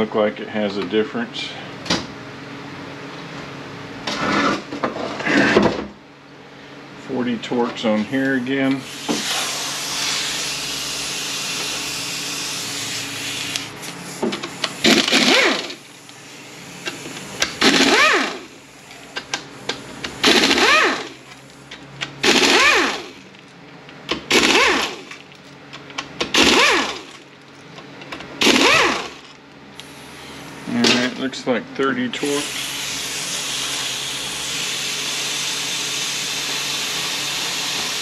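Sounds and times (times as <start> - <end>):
power tool motor whining: 8.7 - 21.6, 22.2 - 23.2, 24.3 - 25.2, 26.3 - 27.2, 28.4 - 30.5, 32.3 - 38.0.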